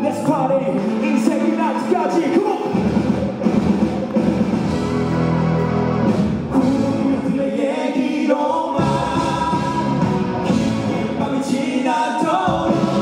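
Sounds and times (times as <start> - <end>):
pop-rock band playing: 0.0 - 7.7, 8.8 - 13.0
person singing: 6.5 - 13.0.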